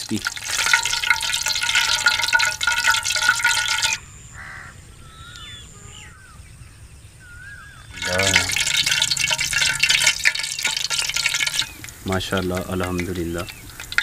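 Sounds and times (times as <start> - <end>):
hot oil sizzling and crackling: 0.0 - 4.6, 7.7 - 14.0
open-air ambience: 0.0 - 14.0
whistling bird calls: 3.8 - 10.8
crow cawing: 4.4 - 6.3.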